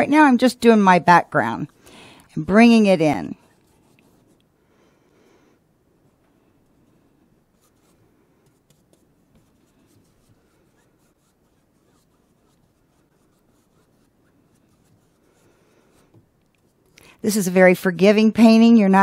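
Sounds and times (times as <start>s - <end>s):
paintbrush brushing on canvas: 2.6s - 4.4s, 7.5s - 16.9s.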